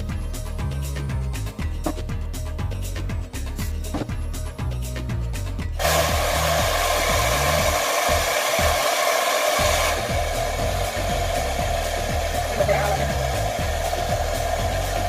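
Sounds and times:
music with bass beat: 0.0s - 8.8s, 9.6s - 15.0s
hair dryer blowing: 5.8s - 15.0s.

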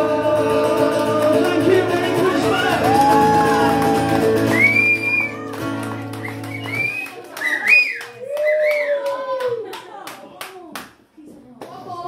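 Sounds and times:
acoustic guitar and singing: 0.0s - 6.9s
audience clapping: 1.1s - 11.8s
crowd cheering and whistling: 2.5s - 9.4s.

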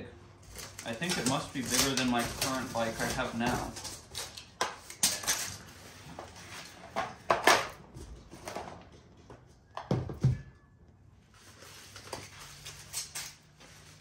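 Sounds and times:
packaging crackles and scrapes: 0.4s - 7.0s, 11.3s - 14.0s.

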